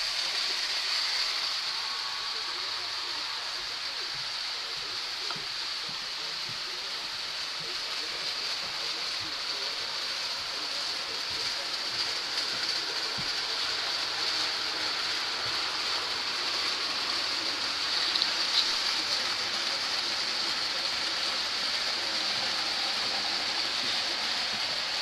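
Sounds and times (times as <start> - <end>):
model trains whirring on track: 0.0 - 25.0.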